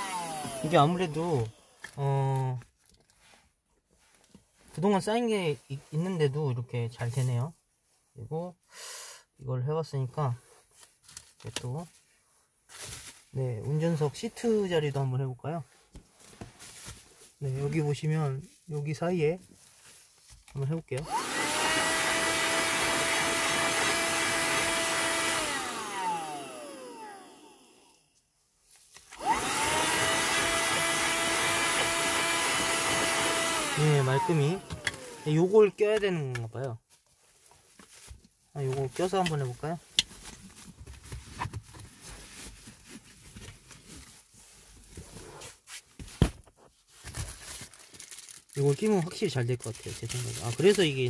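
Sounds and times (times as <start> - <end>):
handheld vacuum cleaner motor whine: 0.0 - 2.0, 21.0 - 28.0, 29.1 - 35.5.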